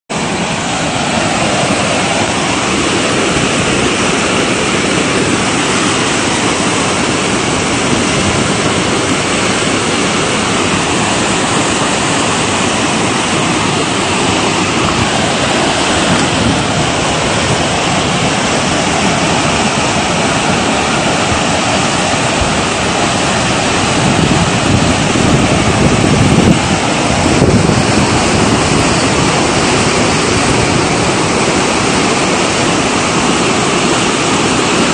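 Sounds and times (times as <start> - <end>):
torrent rushing over rocks: 0.2 - 34.9.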